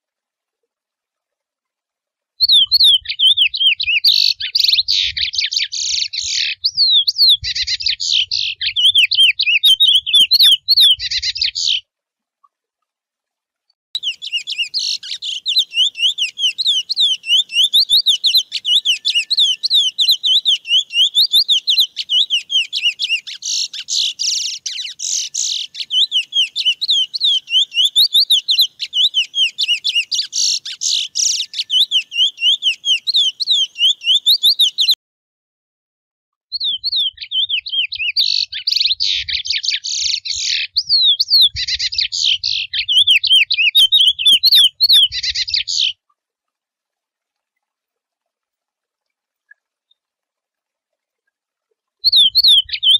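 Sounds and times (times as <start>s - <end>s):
finch singing warble: 2.4s - 11.8s, 14.0s - 35.0s, 36.6s - 46.0s, 52.0s - 52.9s.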